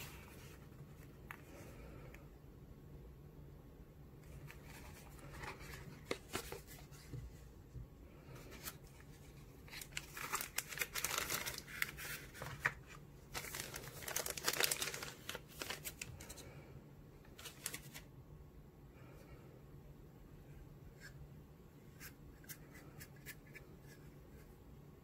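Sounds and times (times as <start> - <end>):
plastic bag crinkling: 9.6 - 16.4.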